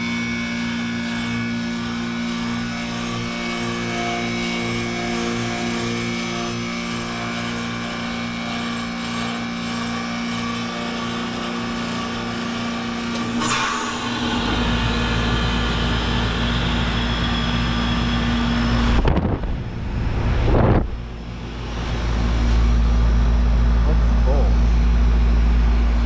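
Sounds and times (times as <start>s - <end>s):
heat pump humming: 0.0s - 26.0s
deep rush of air: 13.7s - 23.8s
short whoosh: 18.6s - 22.8s.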